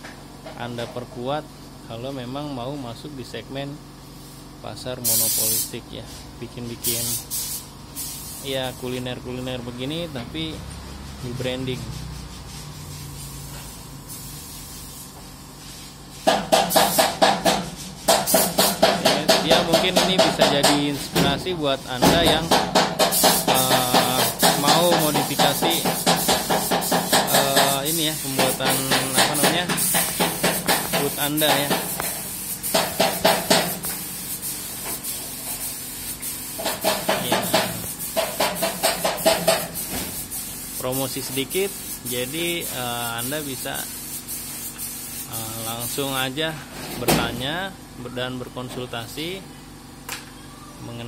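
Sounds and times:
paint spray gun hissing: 4.2s - 5.8s, 6.8s - 9.0s, 12.1s - 21.2s, 21.8s - 46.2s
music with drum beat: 22.1s - 31.9s.

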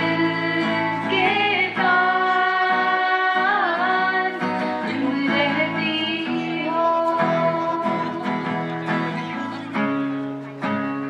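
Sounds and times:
women singing a duet: 0.0s - 8.7s
strummed acoustic guitar: 0.0s - 11.0s.

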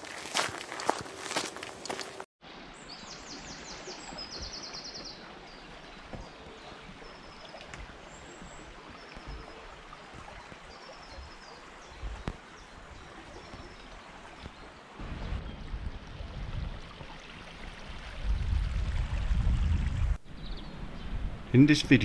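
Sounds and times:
songbirds singing: 2.8s - 15.8s, 20.2s - 22.0s.

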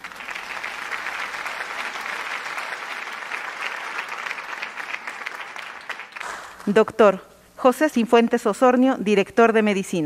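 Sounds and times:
small group applauding: 0.0s - 6.8s.

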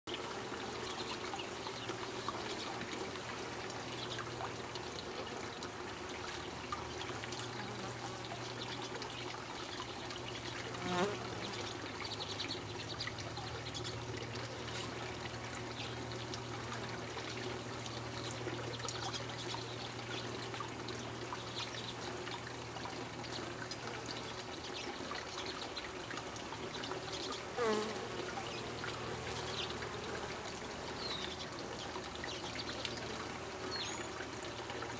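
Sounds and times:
honeybees buzzing: 10.7s - 11.6s, 27.4s - 31.8s
bee flying past: 10.7s - 11.8s, 27.5s - 31.3s.

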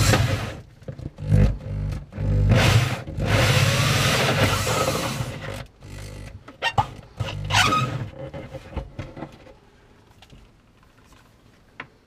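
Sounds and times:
power drill with hole saw: 0.0s - 0.6s, 2.3s - 5.6s.

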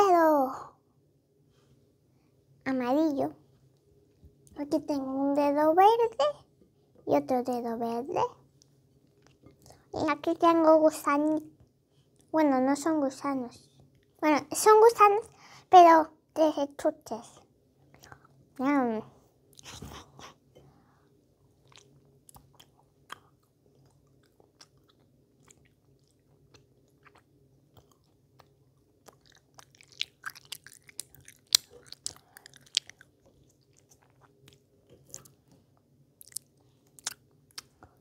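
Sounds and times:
faint steady hum: 0.0s - 38.0s
child chewing with wet mouth clicks: 21.5s - 38.0s.

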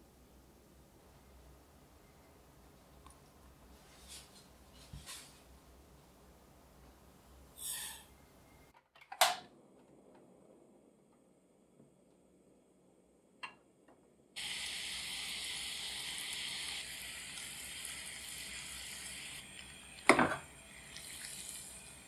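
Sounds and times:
syrup sizzling in saucepan: 14.4s - 22.0s.

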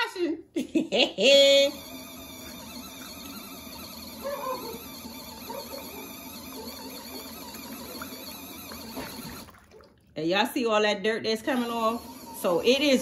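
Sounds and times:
washing machine motor hum: 0.0s - 13.0s
water and clothes churning: 1.9s - 10.5s.

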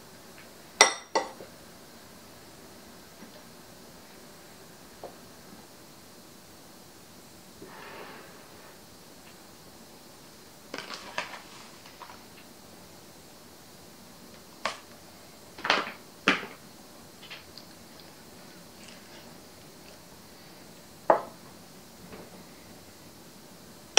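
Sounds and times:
spoon knocking against glass bowl: 0.8s - 1.4s.

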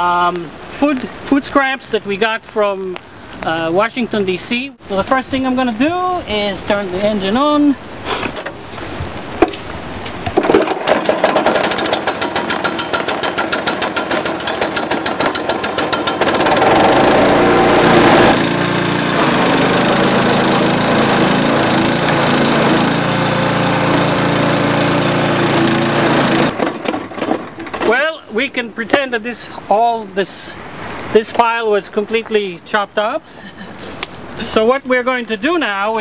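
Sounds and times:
small petrol engine chugging: 10.4s - 27.8s.

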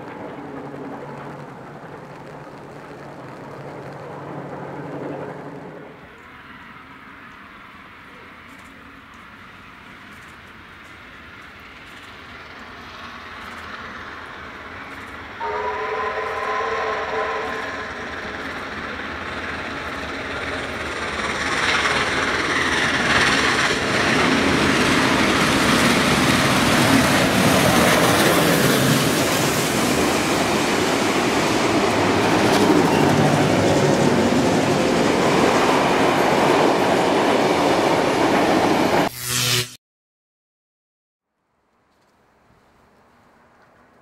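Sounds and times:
steam locomotive rumbling past: 0.0s - 8.5s, 9.2s - 39.5s
wheels clattering over rail joints: 17.6s - 38.1s.

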